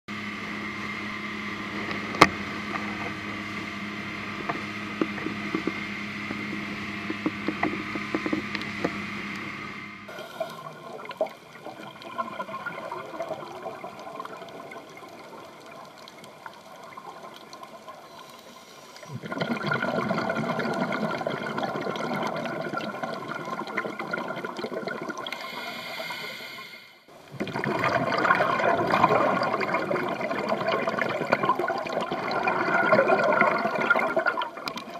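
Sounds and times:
boat engine running: 0:00.1 - 0:10.5
muffled underwater ambience: 0:00.1 - 0:34.9
regulator bubbles rushing: 0:01.6 - 0:18.1, 0:19.0 - 0:25.5, 0:27.2 - 0:34.9.

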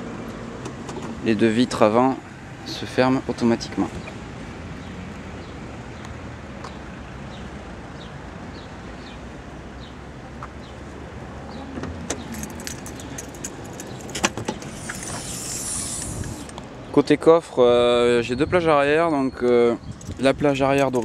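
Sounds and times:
outdoor background hum: 0:00.0 - 0:17.1
car keys jangling: 0:12.2 - 0:15.3, 0:19.9 - 0:21.0.

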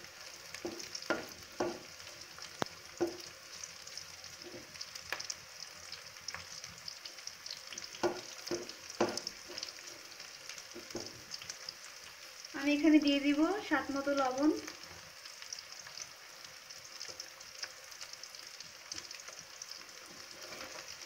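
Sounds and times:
onions sizzling in hot oil: 0:00.0 - 0:21.0
wooden spatula scraping a pan: 0:00.6 - 0:01.9, 0:04.4 - 0:04.8, 0:07.8 - 0:11.2, 0:20.0 - 0:21.0.

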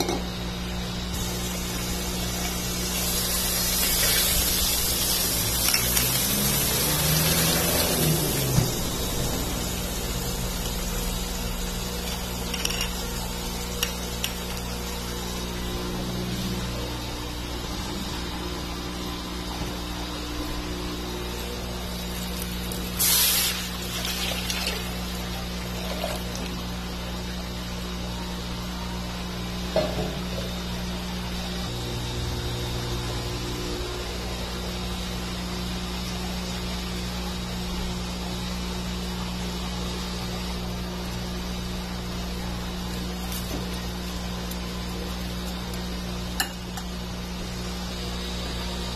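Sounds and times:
steady low hum: 0:00.0 - 0:48.9
even hiss: 0:01.1 - 0:15.5, 0:21.7 - 0:26.5
broth pouring into pot: 0:01.2 - 0:15.6, 0:21.3 - 0:27.2.

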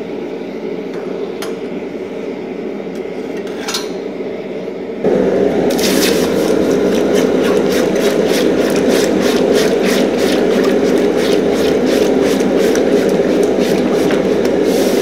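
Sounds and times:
water boiling against hot steel: 0:05.7 - 0:15.0.

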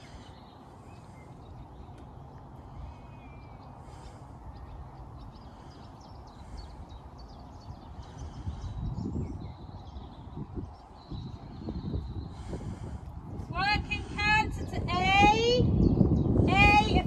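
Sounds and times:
birds chirping: 0:00.0 - 0:17.0
wind buffeting microphone: 0:00.0 - 0:17.0.

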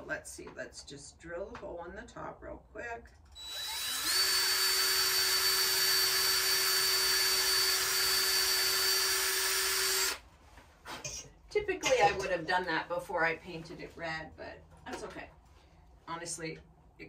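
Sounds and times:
cordless drill whining: 0:03.4 - 0:10.2.

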